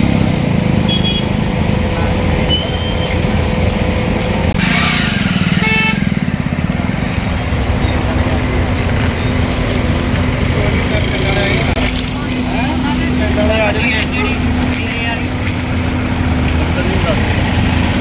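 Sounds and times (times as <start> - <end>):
vehicle engines rumbling: 0.0 - 18.0
car horn toot: 0.8 - 1.4, 4.6 - 6.2.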